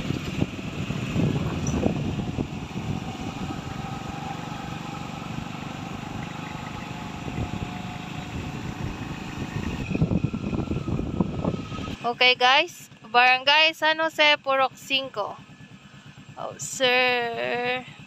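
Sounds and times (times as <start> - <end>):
wind noise on microphone: 0.0 - 4.6, 7.0 - 12.2
motorcycle engine running: 0.0 - 18.0
road rumble: 0.0 - 18.0.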